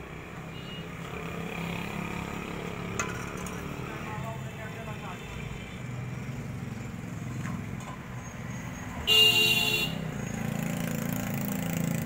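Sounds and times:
vehicle horn blast: 9.1s - 10.0s.

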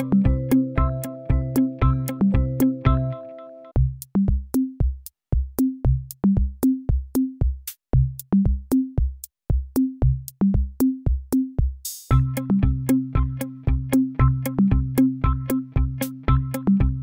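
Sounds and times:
kick drum thumps: 3.8s - 17.0s.

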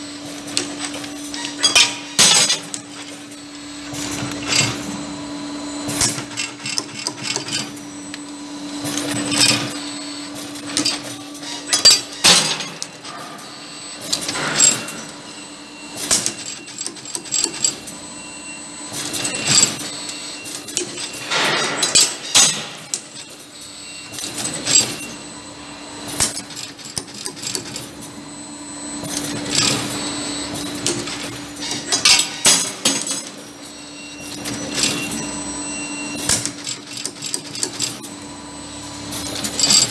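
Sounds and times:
steady motor hum: 0.0s - 39.9s
metallic clicks and clanks: 0.3s - 3.4s, 5.9s - 7.9s, 10.4s - 15.1s, 18.9s - 25.1s, 29.0s - 35.2s, 36.2s - 38.1s.

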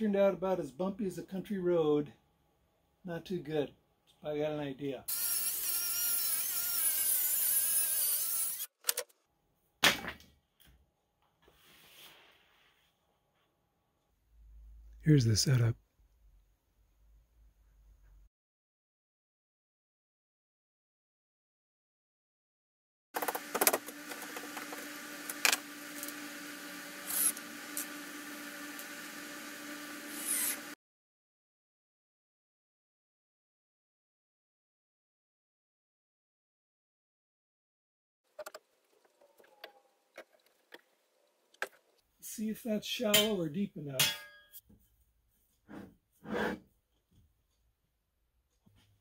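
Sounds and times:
circular saw cutting board: 5.1s - 8.8s, 23.2s - 30.8s
cordless drill driving screw: 5.1s - 9.0s, 27.0s - 28.0s, 29.7s - 30.8s.

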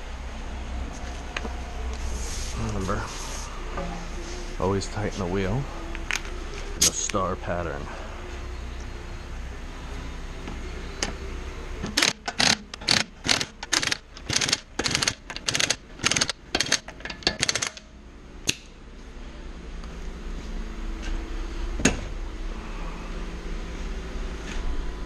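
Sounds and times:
ratchet wrench clicking: 11.9s - 17.9s.

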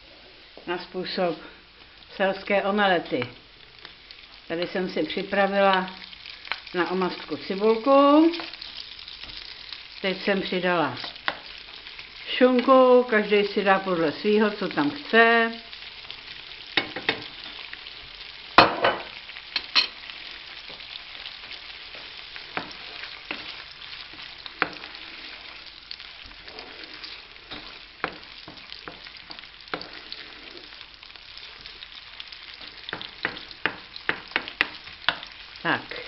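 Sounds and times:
food sizzling in a frying pan: 0.0s - 36.0s
wooden spoon knocking and scraping pan: 11.0s - 11.5s, 16.8s - 17.6s, 21.9s - 25.0s, 27.5s - 30.0s, 32.6s - 35.4s.

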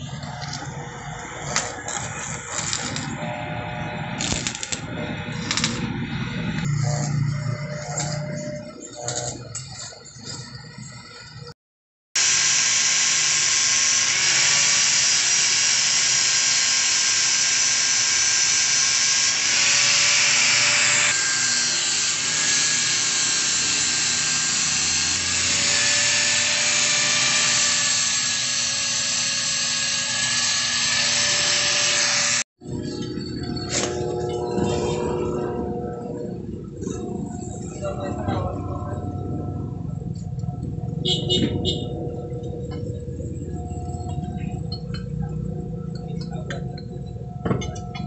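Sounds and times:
welding arc hissing: 4.0s - 5.9s, 12.2s - 25.4s.

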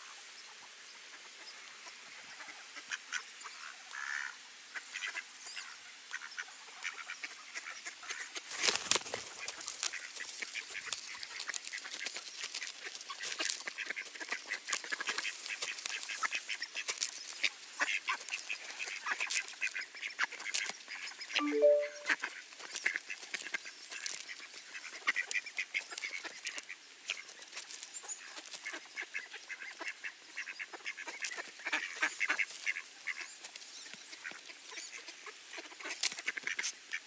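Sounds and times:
duck bills rattling through grain: 8.4s - 21.8s, 22.4s - 30.0s, 30.8s - 34.7s.

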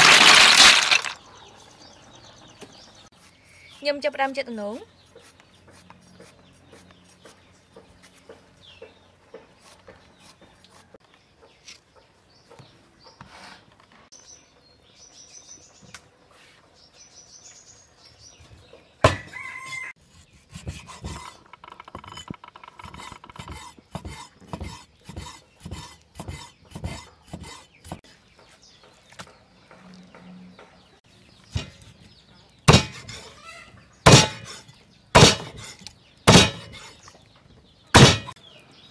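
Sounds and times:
cleaver chopping on wooden board: 22.9s - 28.0s, 32.7s - 33.2s, 34.0s - 34.6s, 35.2s - 35.7s, 36.3s - 36.9s, 38.0s - 38.4s.

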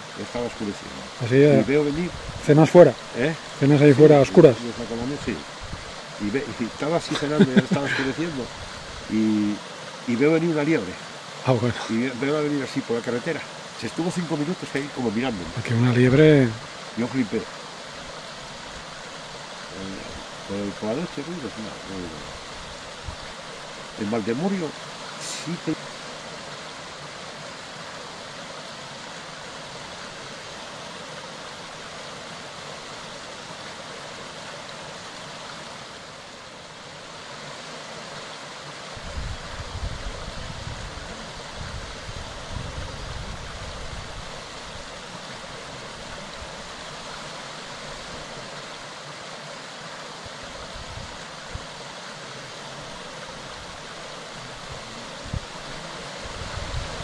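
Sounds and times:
stream water rushing: 0.0s - 57.0s.

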